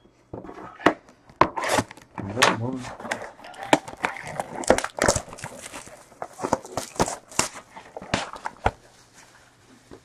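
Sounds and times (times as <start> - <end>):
plastic wrapper tearing and crinkling: 1.6 - 8.9.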